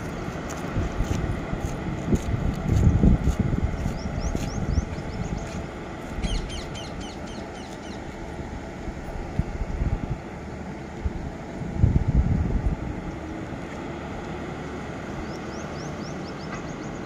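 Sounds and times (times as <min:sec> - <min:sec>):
locomotives rumbling over rails: 0:00.0 - 0:17.0
birds chirping: 0:03.9 - 0:08.2, 0:14.6 - 0:17.0.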